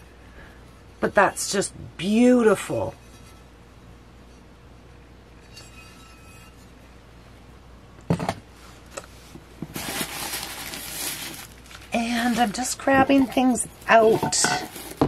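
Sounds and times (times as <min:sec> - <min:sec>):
packing material rustling: 0:09.6 - 0:15.0.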